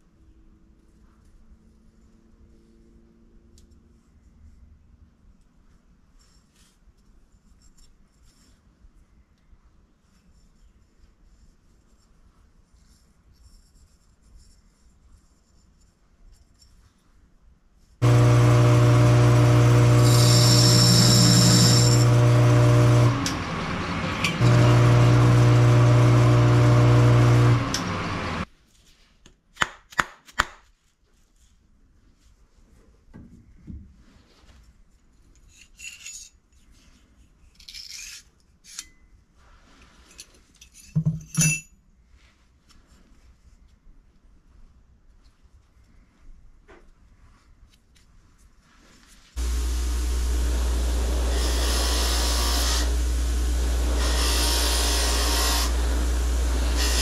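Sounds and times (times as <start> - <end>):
lathe motor hum: 18.0 - 28.5, 49.4 - 57.0
metal scraping and rasping: 18.0 - 28.5, 49.4 - 57.0.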